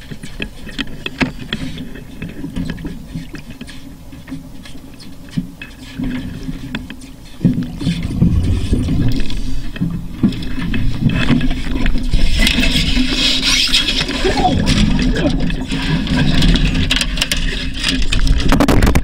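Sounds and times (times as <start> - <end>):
low underwater rumble: 7.5 - 12.4.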